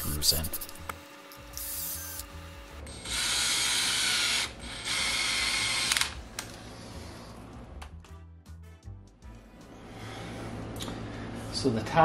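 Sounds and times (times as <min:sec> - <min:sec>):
cordless drill driving screws: 0:02.9 - 0:06.2.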